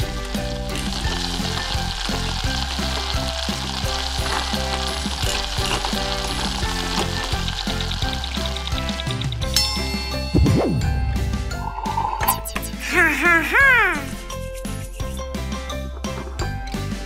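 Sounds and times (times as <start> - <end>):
food sizzling in a pan: 0.0 - 9.2
background music: 0.0 - 17.0.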